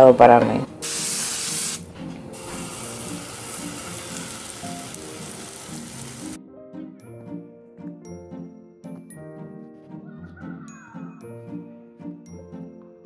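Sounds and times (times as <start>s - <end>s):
light background music: 0.0s - 13.0s
batter sizzling in frying pan: 0.8s - 6.4s.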